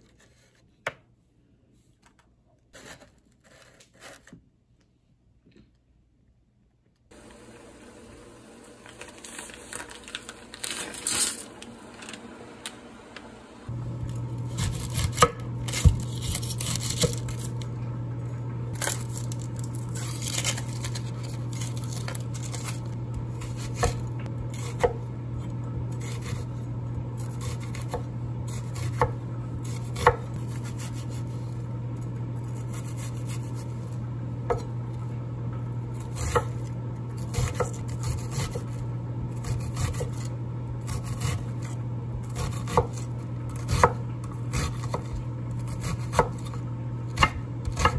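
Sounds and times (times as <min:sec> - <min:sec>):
steady low hum: 0:11.4 - 0:47.9.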